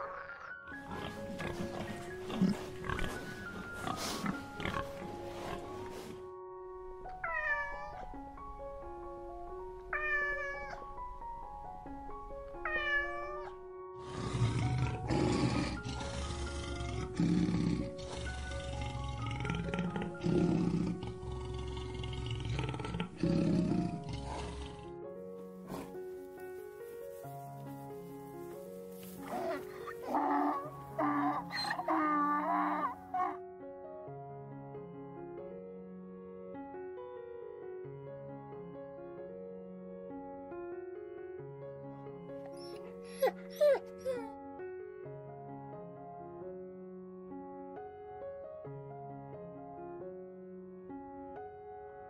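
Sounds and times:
pigs grunting and snuffling: 0:00.0 - 0:06.2, 0:14.0 - 0:24.9, 0:25.6 - 0:26.0, 0:29.0 - 0:33.0
background music: 0:00.0 - 0:52.0
cat meowing: 0:07.2 - 0:08.1, 0:09.9 - 0:10.8, 0:12.6 - 0:13.6
lion roaring in low growls: 0:14.0 - 0:24.9.

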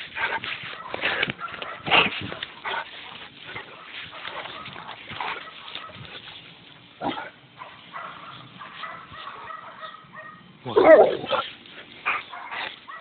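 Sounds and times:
dog barking: 0:00.6 - 0:02.1, 0:03.8 - 0:06.0, 0:07.0 - 0:11.4, 0:12.1 - 0:13.0
dog growling and grunting: 0:10.6 - 0:11.5.

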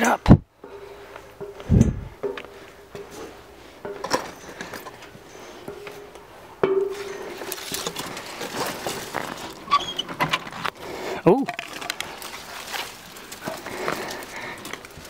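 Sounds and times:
squeaky creak: 0:09.6 - 0:10.4.

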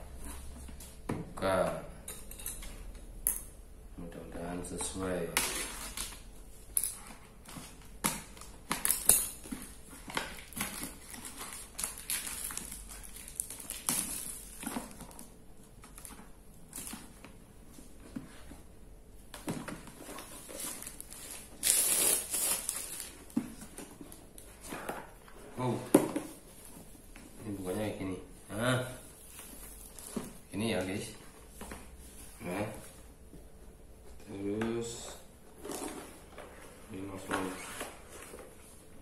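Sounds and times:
plastic wrapping crinkling: 0:07.7 - 0:17.1, 0:20.1 - 0:24.5.

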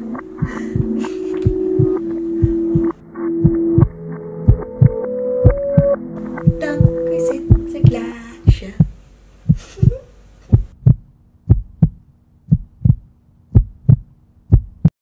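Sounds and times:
heartbeat thumps: 0:00.0 - 0:14.9
faint steady hum: 0:06.2 - 0:14.8.

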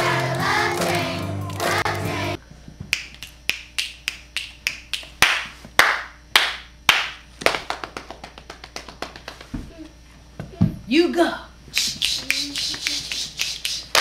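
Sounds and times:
hands clapping: 0:02.9 - 0:09.6, 0:11.8 - 0:14.0.

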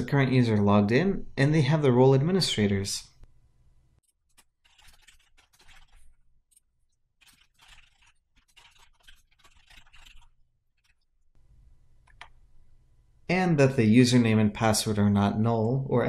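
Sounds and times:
faint keyboard typing: 0:04.0 - 0:11.1, 0:11.8 - 0:12.5.

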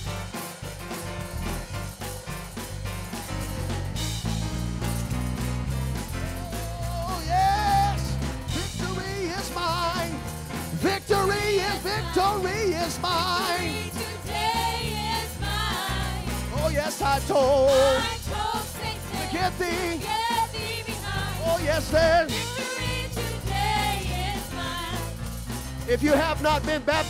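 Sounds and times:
church band playing: 0:00.0 - 0:27.0
worship singers singing: 0:06.3 - 0:10.2, 0:10.8 - 0:25.3.

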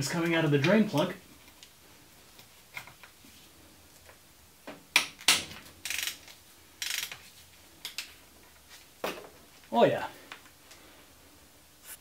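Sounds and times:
sharp metal clicks: 0:05.0 - 0:07.2
socket ratchet clicking: 0:05.1 - 0:07.2.

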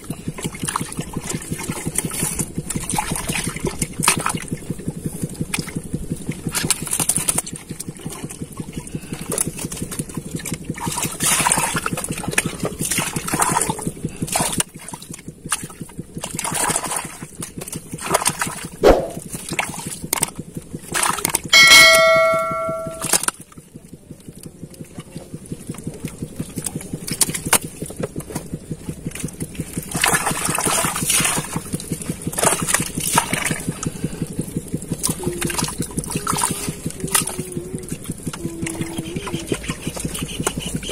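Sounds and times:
bell chiming: 0:21.6 - 0:23.1.

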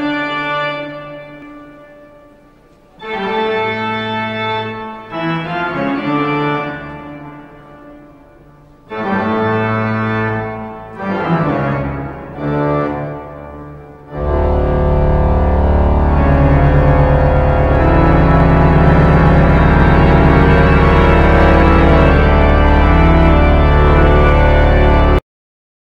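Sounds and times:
organ ringtone chords: 0:14.2 - 0:25.1.

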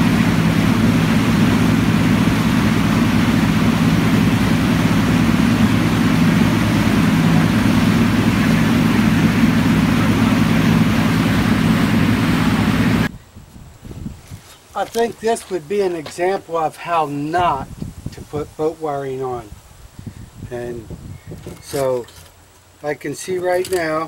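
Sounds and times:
boat motor running: 0:00.0 - 0:13.1
water rushing in wake: 0:00.0 - 0:13.1.

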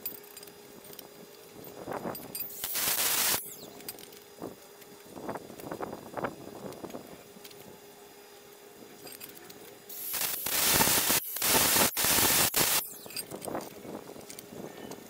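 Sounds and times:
wire wheel grinder on steel: 0:09.9 - 0:13.3.

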